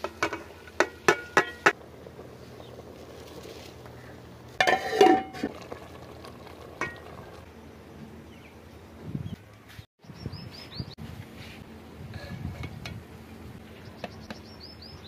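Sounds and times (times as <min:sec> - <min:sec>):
rice pouring into a pot: 0:05.3 - 0:07.4.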